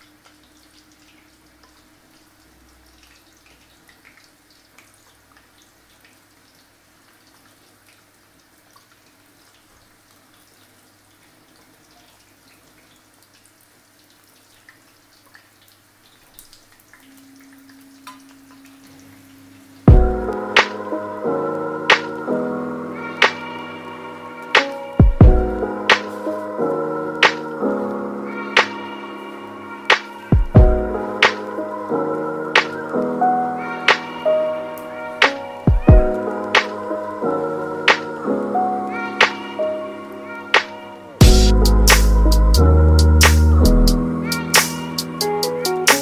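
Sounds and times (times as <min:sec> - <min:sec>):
oil sizzling with pops: 0:00.0 - 0:22.3, 0:24.5 - 0:27.7, 0:32.5 - 0:33.2
loud music: 0:40.5 - 0:46.0.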